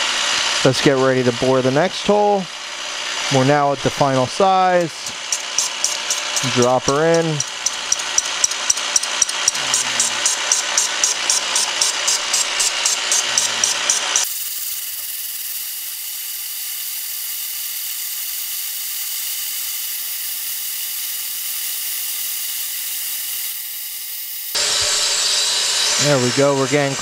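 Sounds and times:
boring bar whirring hiss: 0.0 - 27.0
boring bar rapid ticking: 4.8 - 14.3.

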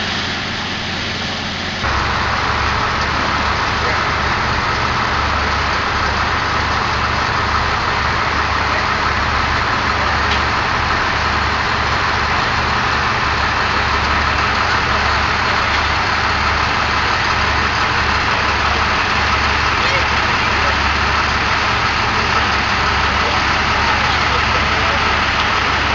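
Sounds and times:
vehicle engine running: 0.0 - 25.9.

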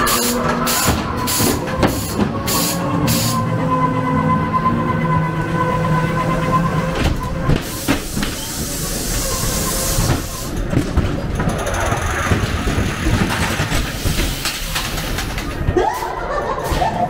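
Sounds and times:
ghost train car rattling on track: 0.0 - 17.0
hiss: 7.6 - 10.5, 13.9 - 14.8.

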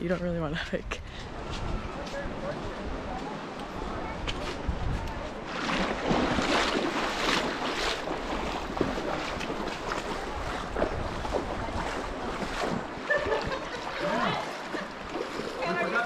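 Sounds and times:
wind buffeting microphone: 0.6 - 13.8
river water rushing over stones: 5.3 - 13.0.

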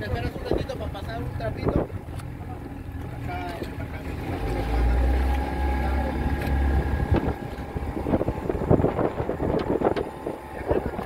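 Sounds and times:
wind buffeting microphone: 0.0 - 2.1, 6.0 - 11.0
boat motor running: 0.0 - 11.0.

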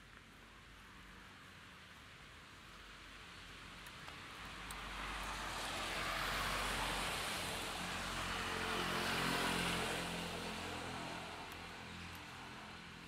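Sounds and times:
tyres hissing on wet road: 2.8 - 11.8.

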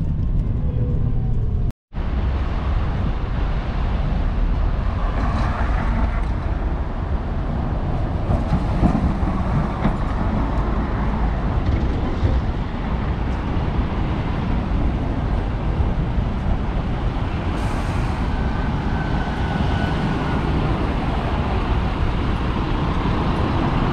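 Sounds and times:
traffic rumble: 0.0 - 23.9.

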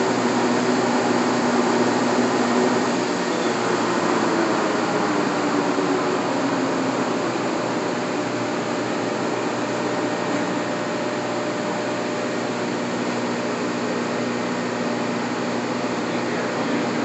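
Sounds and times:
lathe mechanical hum: 0.0 - 17.0.

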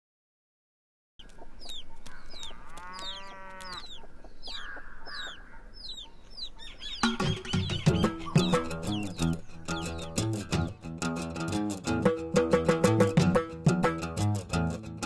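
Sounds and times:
chickens: 1.2 - 10.4
small birds chirping: 1.2 - 11.0.

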